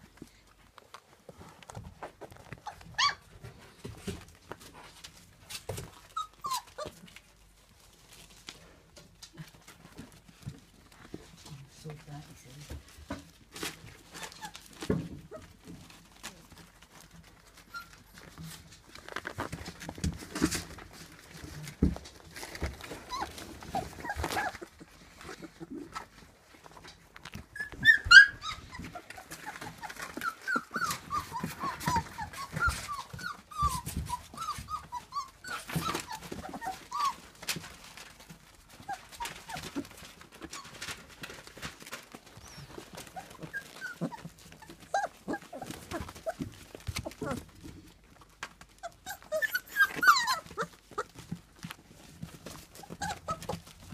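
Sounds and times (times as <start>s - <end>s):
puppies whimpering: 2.4s - 3.5s, 5.9s - 7.2s, 14.0s - 18.4s, 22.4s - 53.9s.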